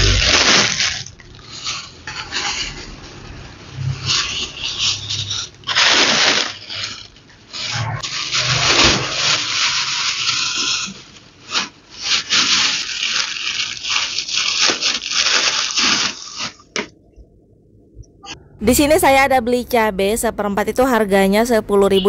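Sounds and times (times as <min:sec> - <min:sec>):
plastic bags rustling: 0:00.0 - 0:16.9.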